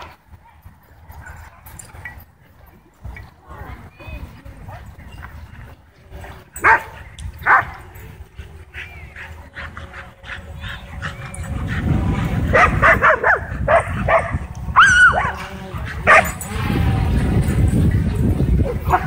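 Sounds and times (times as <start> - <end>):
dogs barking and yipping: 6.2 - 19.0.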